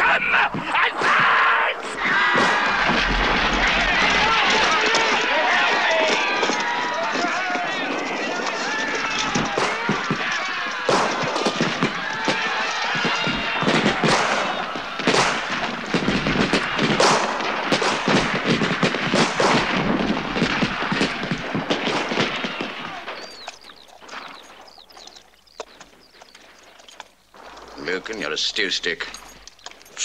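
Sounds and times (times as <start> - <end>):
rapid musket fire: 10.9 - 11.6, 13.6 - 22.4.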